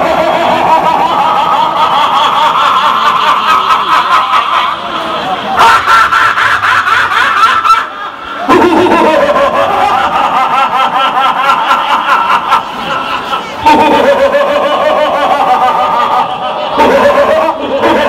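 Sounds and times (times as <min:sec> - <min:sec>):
man laughing exaggeratedly: 0:00.0 - 0:18.0.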